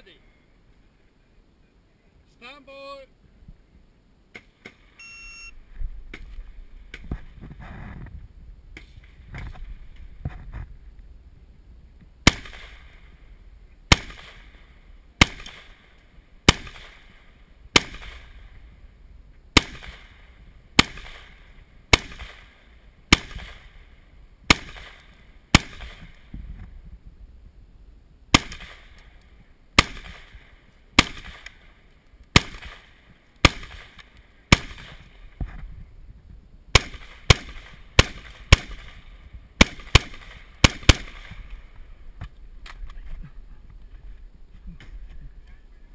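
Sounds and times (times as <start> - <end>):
rifle single shots: 12.2 - 13.2, 13.9 - 18.6, 19.5 - 23.9, 24.5 - 26.3, 28.3 - 29.2, 29.8 - 35.2, 36.7 - 41.7.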